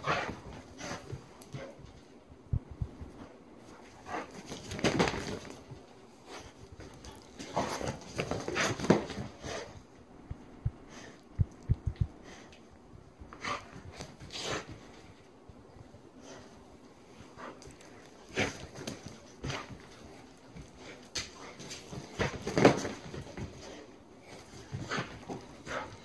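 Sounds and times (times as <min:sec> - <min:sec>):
dog scuffling on a rug: 0:00.0 - 0:02.1, 0:03.0 - 0:09.8, 0:13.3 - 0:15.3, 0:16.2 - 0:26.0.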